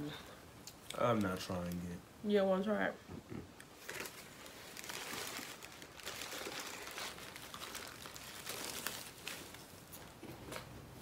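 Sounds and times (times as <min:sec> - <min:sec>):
faint crinkling and rustling: 0:03.1 - 0:10.9.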